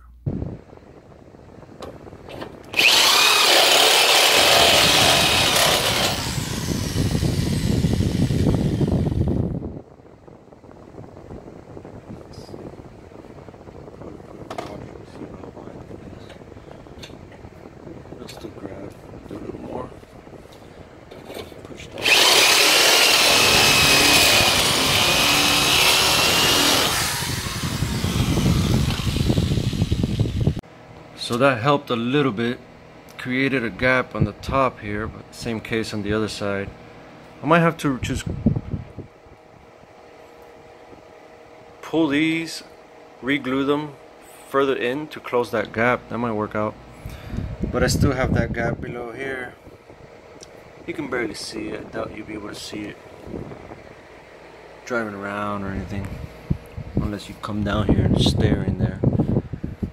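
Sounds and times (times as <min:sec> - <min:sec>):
rotary tool whining: 0:02.6 - 0:09.5, 0:21.2 - 0:30.6
rotary tool grinding metal: 0:02.7 - 0:09.3, 0:22.0 - 0:30.6
electric drill cutting metal: 0:02.7 - 0:09.4, 0:22.0 - 0:30.6.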